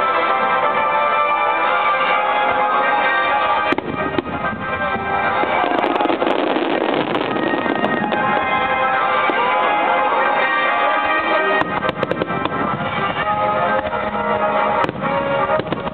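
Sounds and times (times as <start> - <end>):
music: 0.0 - 15.9
glittering firework crackle: 3.4 - 15.9
firework cracks and bangs: 3.5 - 9.8, 11.5 - 14.0, 14.7 - 15.9.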